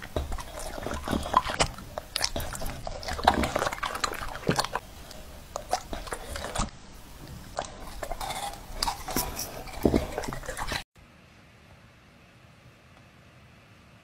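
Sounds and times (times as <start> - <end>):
dog crunching apple: 0.0 - 10.8.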